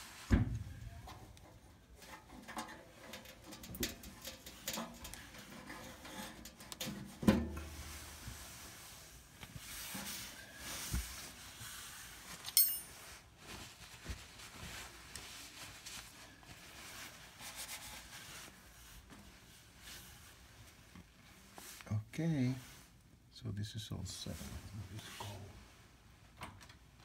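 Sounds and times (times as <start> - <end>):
sharp ringing metallic clink: 12.6 - 13.0.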